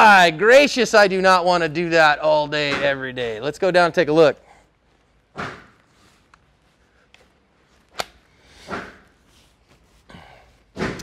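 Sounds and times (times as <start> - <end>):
soft rustling: 4.5 - 10.8.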